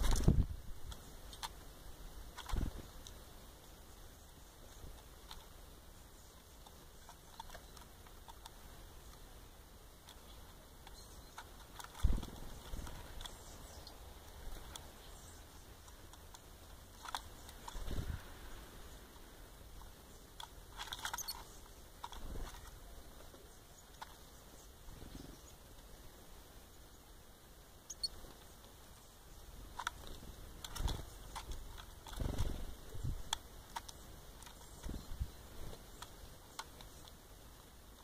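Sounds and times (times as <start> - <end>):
pecking clicks: 0.0 - 1.7, 6.2 - 9.3, 10.0 - 17.9, 19.8 - 22.8, 29.6 - 38.0
short high bird chirps: 27.9 - 28.1.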